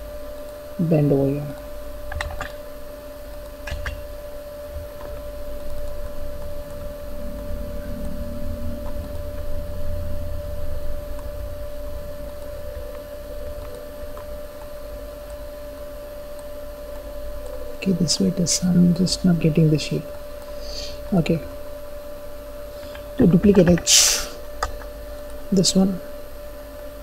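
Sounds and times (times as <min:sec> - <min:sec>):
steady hum: 0:00.0 - 0:27.0
low rumble: 0:03.9 - 0:15.2.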